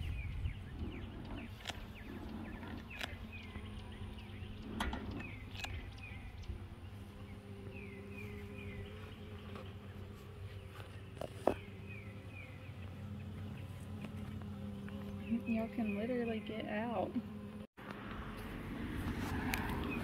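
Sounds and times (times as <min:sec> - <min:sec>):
bird chirping: 0:00.0 - 0:16.7
honeybees humming: 0:00.0 - 0:20.0.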